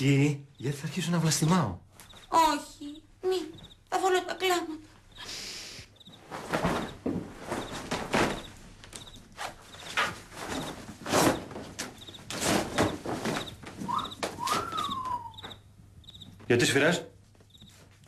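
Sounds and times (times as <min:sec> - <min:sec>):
clothes rustling: 0:06.1 - 0:14.8
soft thumps and shuffling: 0:06.1 - 0:14.9.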